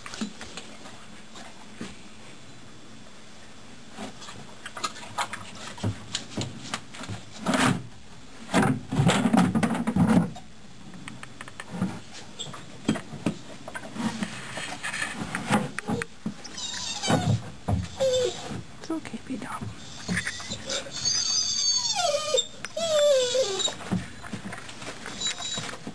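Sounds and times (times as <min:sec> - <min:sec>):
knocks and scrapes on wood: 0:12.9 - 0:16.4.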